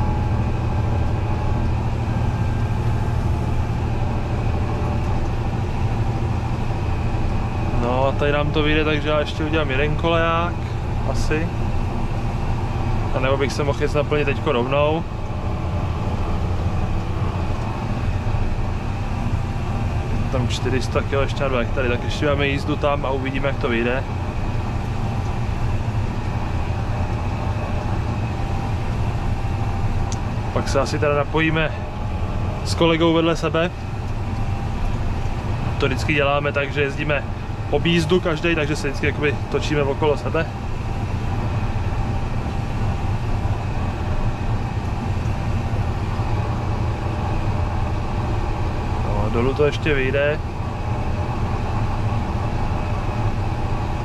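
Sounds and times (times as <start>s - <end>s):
tractor diesel engine drone: 0.0s - 54.0s.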